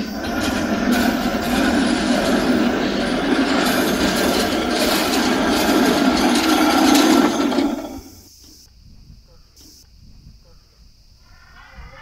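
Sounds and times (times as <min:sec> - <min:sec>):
slide rollers rattling: 0:00.0 - 0:08.3.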